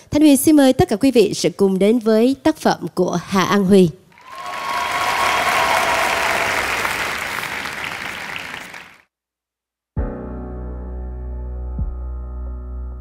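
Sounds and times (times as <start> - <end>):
studio audience applauding: 4.1 - 9.0.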